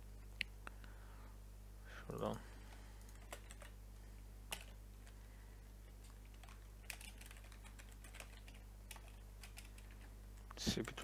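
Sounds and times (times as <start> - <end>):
low electrical hum: 0.0 - 11.0
keyboard typing: 3.0 - 3.8, 4.5 - 5.2, 6.0 - 10.1.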